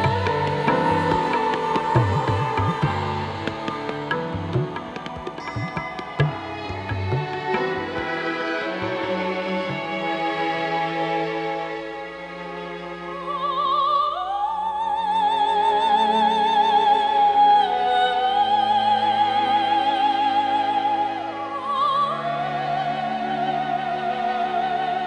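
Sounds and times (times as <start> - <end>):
orchestral accompaniment: 0.0 - 13.5
operatic soprano singing: 0.0 - 25.0.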